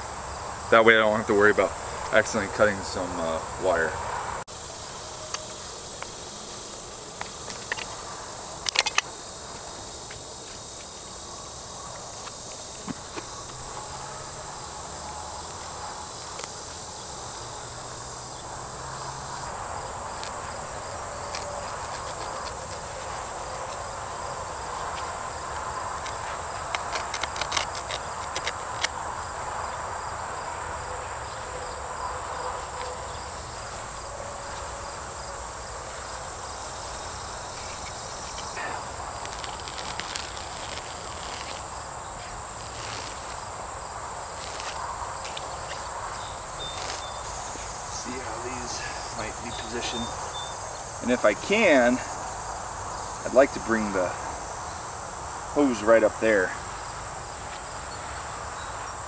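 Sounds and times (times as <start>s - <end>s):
grass rustling: 0.0s - 59.0s
high-pitched insect chorus: 0.0s - 59.0s
snaps of roots and cord tearing: 21.2s - 22.9s, 25.9s - 29.0s, 39.2s - 41.7s.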